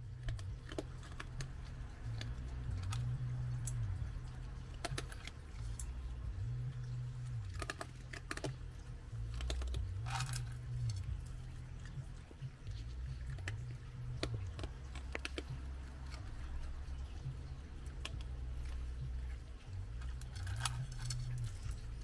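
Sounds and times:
animal crunching dry kibble: 0.0s - 22.0s
low hum shifting in pitch: 0.0s - 22.0s.

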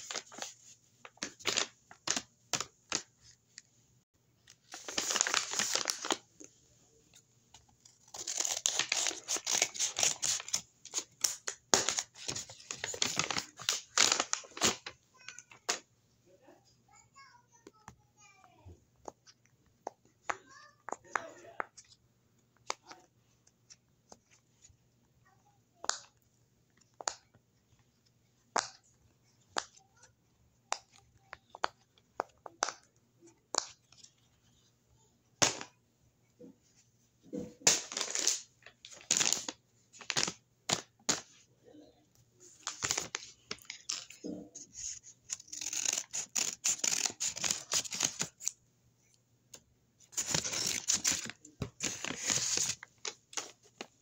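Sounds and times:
paper crinkling and rustling: 4.6s - 6.2s, 7.7s - 15.0s, 42.5s - 48.5s, 50.1s - 54.0s.

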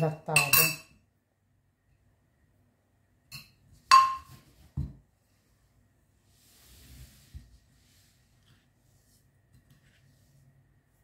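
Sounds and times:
fork clinking on ceramic plate: 0.0s - 1.0s, 3.3s - 4.3s.

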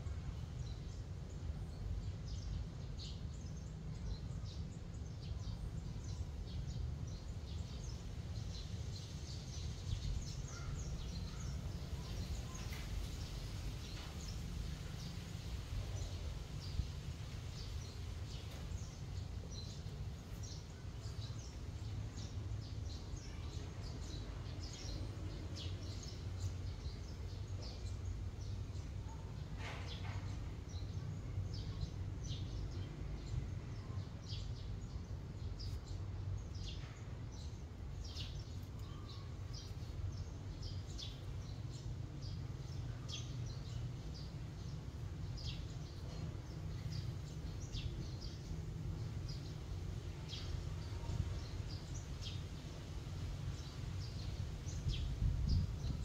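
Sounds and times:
small birds chirping: 0.0s - 56.0s
steady low rumble: 43.4s - 56.0s.

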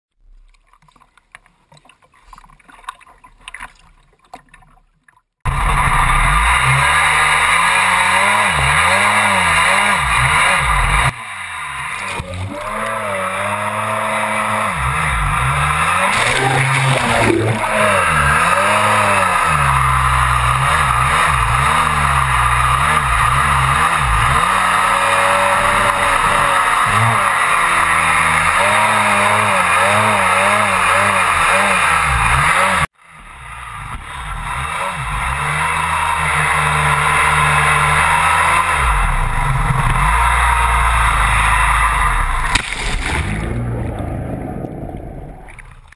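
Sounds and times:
water splashes: 0.2s - 7.3s, 16.0s - 23.4s, 42.2s - 44.1s
jet ski engine revving: 5.5s - 45.8s
water rushing against hull: 16.0s - 23.4s.

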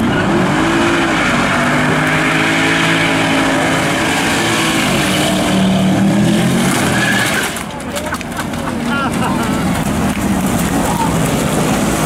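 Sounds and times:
car engine revving hard: 0.0s - 7.6s
tyres spinning on asphalt: 0.0s - 12.0s.

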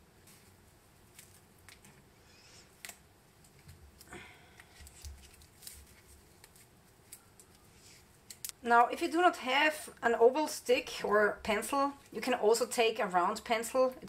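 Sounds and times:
foam and tape rustling: 3.9s - 8.5s.

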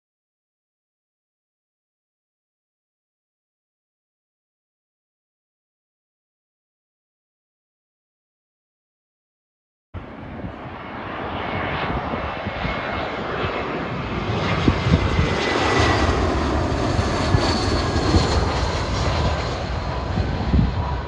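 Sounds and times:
high engine fan whine: 10.0s - 21.0s
jet aircraft passing overhead: 10.0s - 21.0s.

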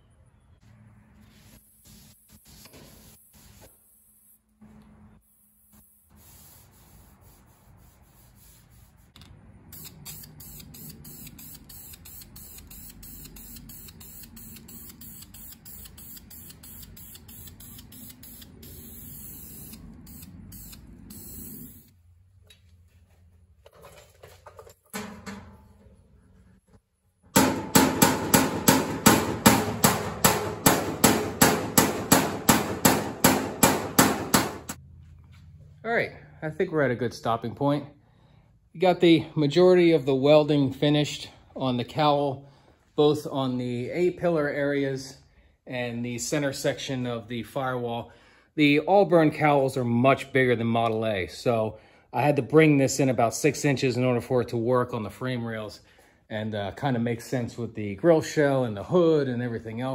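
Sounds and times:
aerosol spray can hissing: 1.3s - 3.8s, 5.8s - 9.1s, 9.7s - 21.9s
hammer blows on sheet steel: 27.3s - 34.8s.

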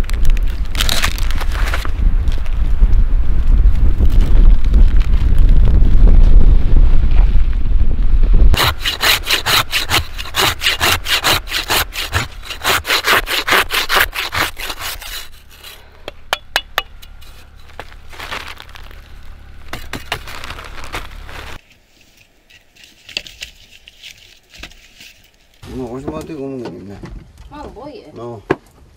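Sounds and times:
soft scraping strokes: 8.5s - 16.1s
hand saw cutting: 8.6s - 15.8s.

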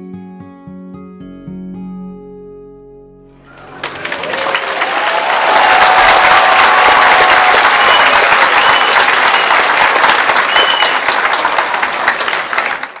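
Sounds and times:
audience applauding: 3.5s - 13.0s.

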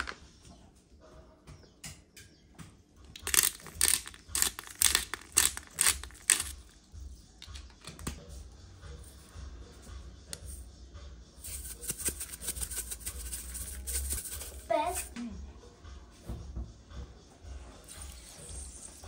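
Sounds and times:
pepper grinder grinding: 3.2s - 6.6s, 11.4s - 15.1s.

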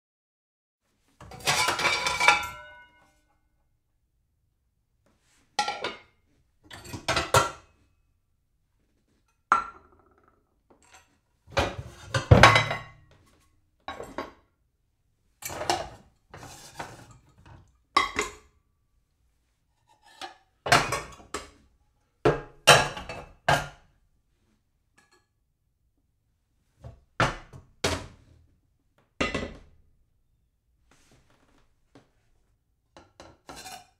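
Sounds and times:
dishes clattering and clinking: 1.2s - 3.0s, 5.6s - 7.7s, 10.8s - 13.1s, 13.9s - 14.4s, 15.4s - 18.6s, 20.0s - 21.6s, 22.3s - 23.8s, 29.2s - 29.7s, 33.0s - 33.9s.

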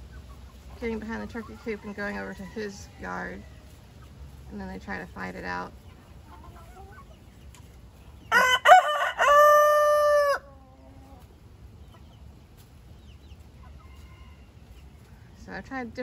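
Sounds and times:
rooster crowing: 8.3s - 10.6s.

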